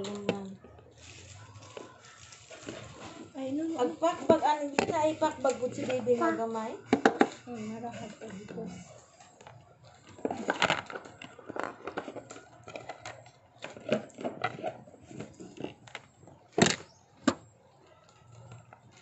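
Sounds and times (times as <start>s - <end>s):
clicks and knocks of handling: 9.2s - 17.4s.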